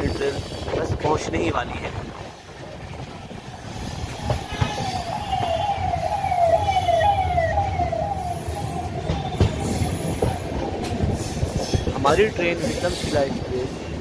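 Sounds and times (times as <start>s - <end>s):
moving train rumble: 0.0s - 14.0s
siren wailing: 4.2s - 10.6s.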